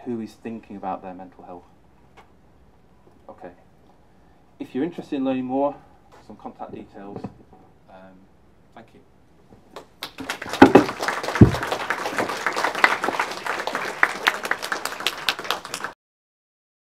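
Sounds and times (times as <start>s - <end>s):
audience applauding: 9.9s - 16.0s.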